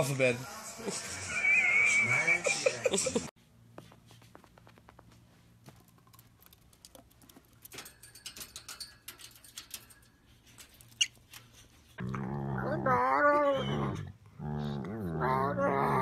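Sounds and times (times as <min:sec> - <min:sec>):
bird feet ticking and scratching: 0:03.8 - 0:12.0.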